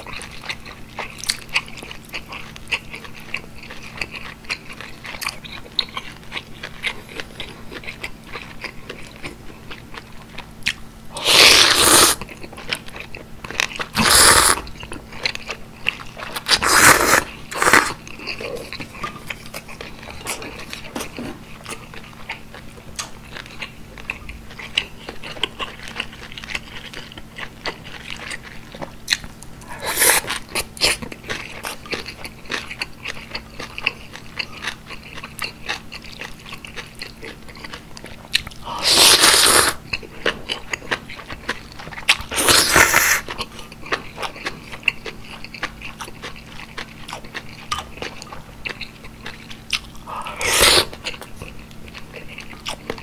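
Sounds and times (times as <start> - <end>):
wet chewing and crunching: 0.0 - 53.0
loud slurps: 11.2 - 12.2, 14.0 - 14.7, 16.5 - 18.0, 29.6 - 31.0, 38.7 - 39.8, 42.3 - 43.2, 50.1 - 51.0.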